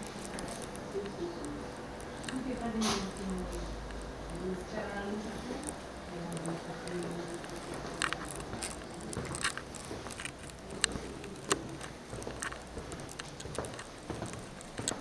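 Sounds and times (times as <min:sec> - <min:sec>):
footsteps on wooden floor: 0:07.7 - 0:15.0.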